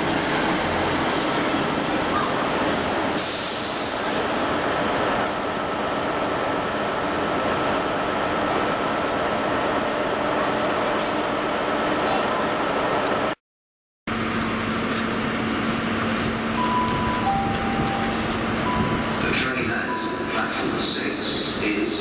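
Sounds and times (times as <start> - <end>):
steam locomotive rumble: 0.0 - 13.4, 14.1 - 22.0
steam hissing: 3.0 - 4.6.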